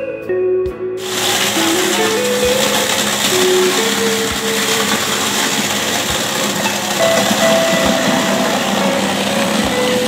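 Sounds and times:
bowl cutter machine running: 0:01.0 - 0:10.0.

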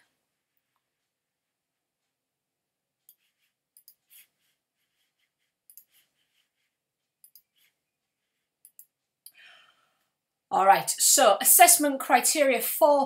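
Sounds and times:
computer mouse clicking: 0:03.1 - 0:04.2, 0:05.7 - 0:06.0, 0:07.2 - 0:07.7, 0:08.6 - 0:09.4.

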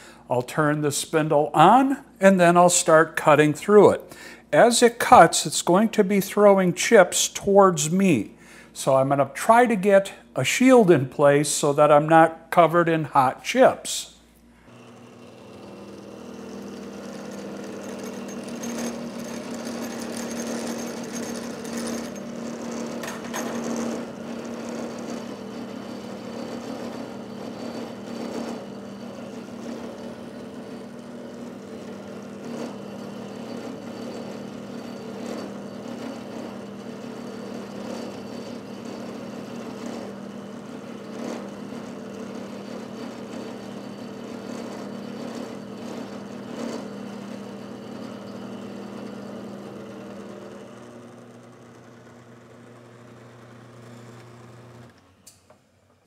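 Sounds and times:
milling machine motor hum: 0:14.6 - 0:55.8
cutter grinding steel: 0:14.7 - 0:55.4.

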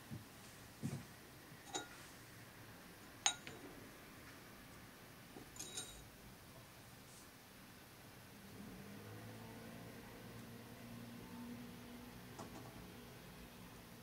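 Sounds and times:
glass clinking on metal tray: 0:01.7 - 0:02.0, 0:03.2 - 0:03.6, 0:05.6 - 0:06.0.

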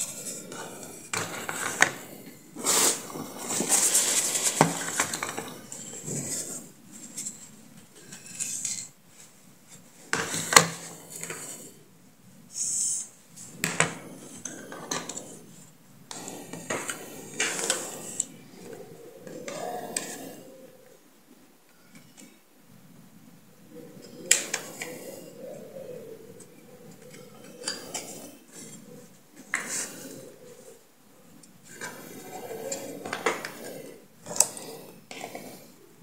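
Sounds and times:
rustling: 0:00.0 - 0:21.1.

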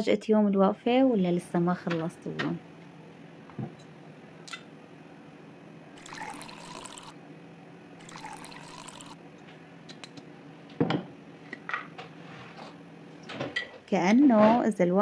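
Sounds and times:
water pouring into glasses: 0:06.0 - 0:07.2, 0:08.0 - 0:09.2.

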